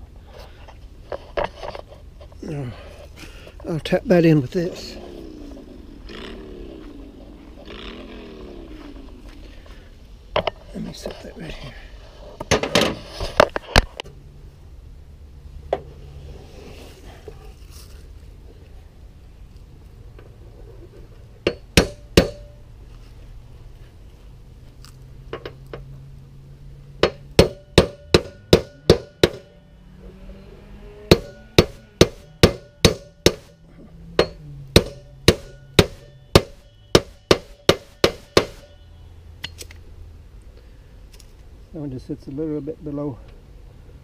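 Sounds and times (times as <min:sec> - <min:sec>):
hammer striking metal: 0:21.4 - 0:22.6, 0:27.0 - 0:29.6, 0:31.1 - 0:33.6, 0:34.2 - 0:38.8.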